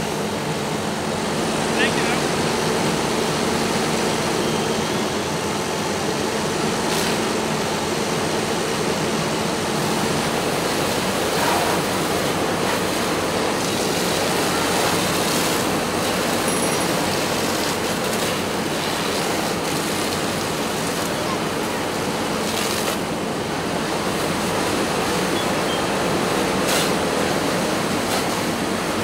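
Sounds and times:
low engine drone: 0.0s - 29.0s
hose water spraying: 9.6s - 29.0s.

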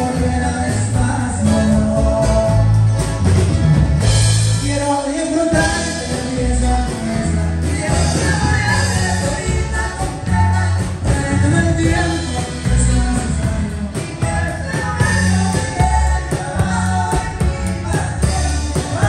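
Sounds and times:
drums: 0.0s - 19.0s
electric bass line: 0.0s - 19.0s
person singing: 4.4s - 19.0s.

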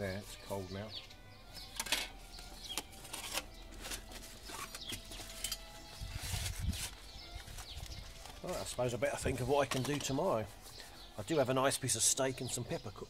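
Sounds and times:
metal plates clinking and scraping: 1.7s - 5.8s.

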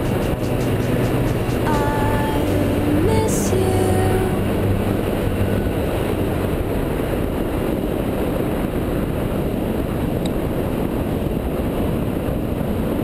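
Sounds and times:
motorcycle engine rumble: 0.0s - 9.0s
wind noise: 0.0s - 13.0s.

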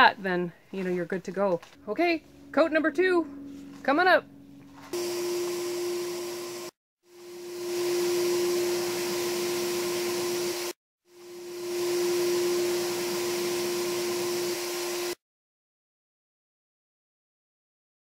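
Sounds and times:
paint sprayer motor hum: 4.8s - 15.2s.

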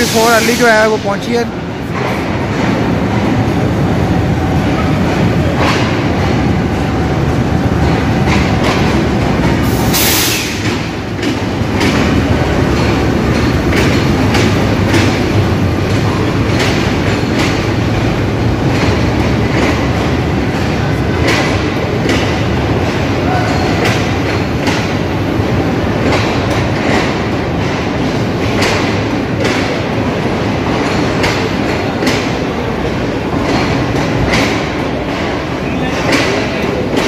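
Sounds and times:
loud hiss: 0.0s - 1.1s, 9.7s - 10.6s
diesel locomotive engine running: 0.0s - 37.0s
train wheels clicking over rails: 0.0s - 37.0s.

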